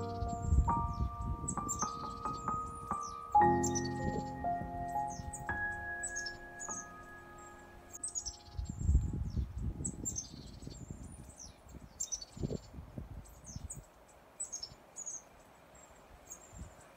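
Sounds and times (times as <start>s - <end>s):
wind buffeting microphone: 0.0s - 6.1s, 8.0s - 13.9s
small birds chirping: 0.0s - 16.9s.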